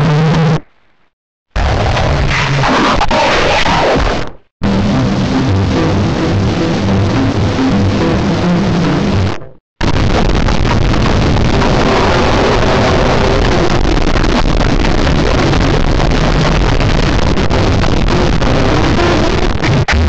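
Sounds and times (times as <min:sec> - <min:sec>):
harsh distorted noise: 0:00.0 - 0:20.0
low rumble: 0:04.6 - 0:18.4.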